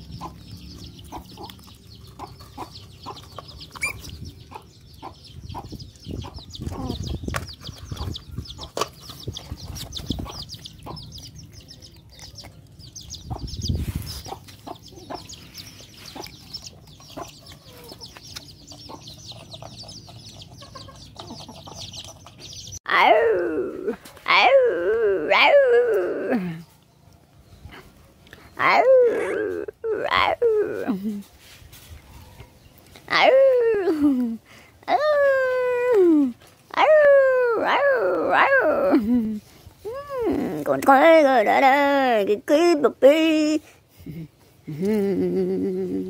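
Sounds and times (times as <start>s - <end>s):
puppies chewing food in metal bowl: 0.0s - 4.9s, 8.7s - 13.2s, 16.2s - 22.8s
chickens clucking: 0.0s - 22.8s
high chirping: 0.0s - 22.8s.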